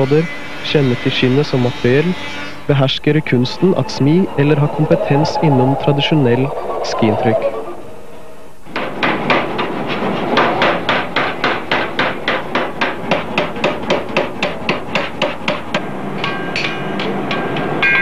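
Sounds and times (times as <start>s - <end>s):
hammer striking hot iron: 8.7s - 18.0s.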